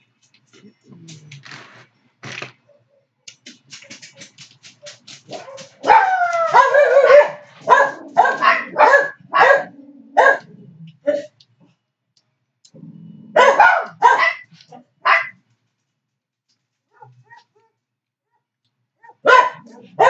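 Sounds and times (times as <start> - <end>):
dog barking: 4.8 - 11.3, 13.3 - 15.4, 16.9 - 20.0.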